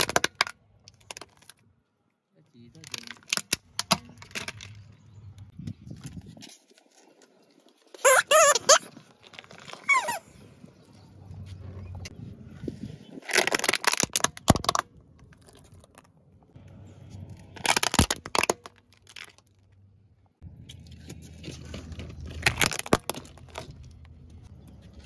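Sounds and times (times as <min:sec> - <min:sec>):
plastic toys cracking under car tyre: 0:00.0 - 0:01.7, 0:02.7 - 0:04.9, 0:13.2 - 0:16.5, 0:17.2 - 0:19.8, 0:20.8 - 0:25.0.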